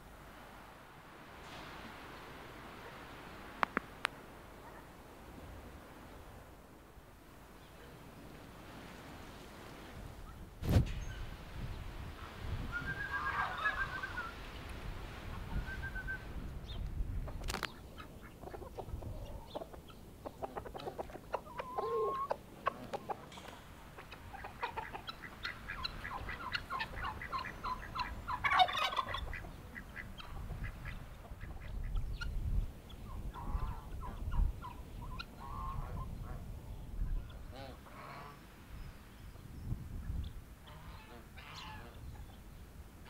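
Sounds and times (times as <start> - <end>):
chickens clucking: 12.8 - 14.4, 16.8 - 36.4
chicken squawk: 12.9 - 14.4, 20.4 - 23.3, 24.0 - 31.7.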